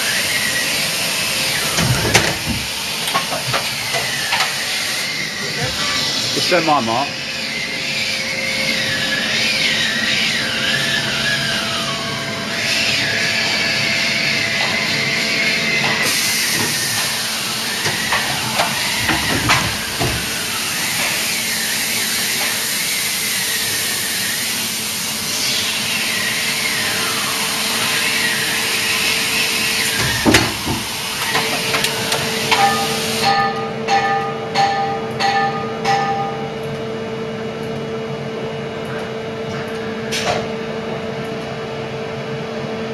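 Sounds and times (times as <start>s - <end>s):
machine humming: 0.0s - 42.9s
machine whines: 0.0s - 42.9s
loud hiss: 16.0s - 33.2s.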